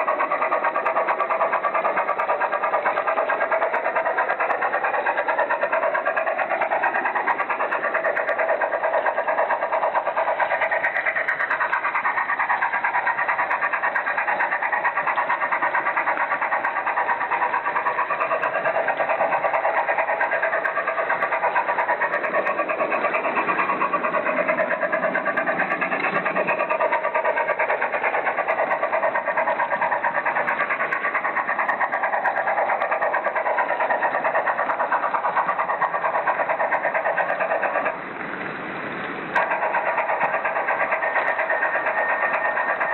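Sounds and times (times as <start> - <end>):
model train motor whir: 0.0 - 42.9.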